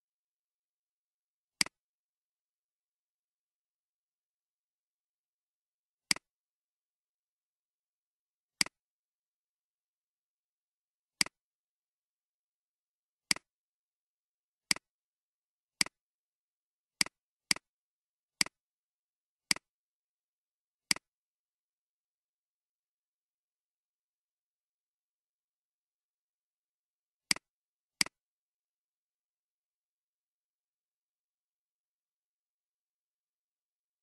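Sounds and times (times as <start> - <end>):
computer mouse clicks: 6.1 - 6.3, 13.3 - 13.5, 14.7 - 14.9, 19.5 - 19.7, 20.9 - 21.1.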